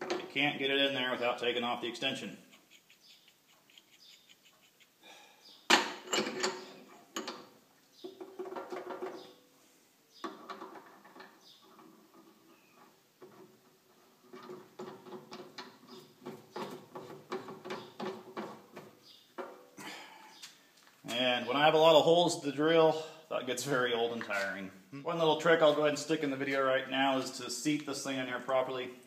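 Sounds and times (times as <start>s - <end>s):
metal clinking and rattling: 5.7s - 7.5s.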